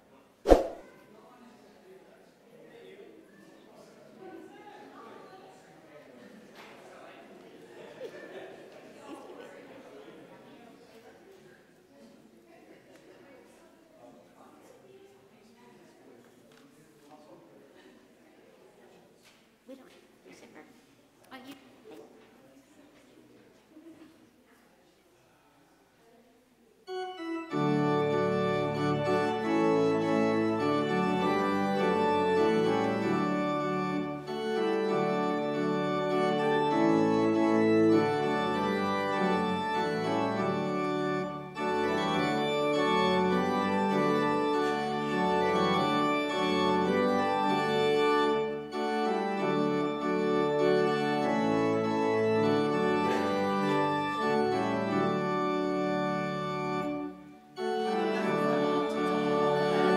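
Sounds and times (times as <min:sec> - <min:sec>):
church organ chords: 0:26.9 - 0:59.9.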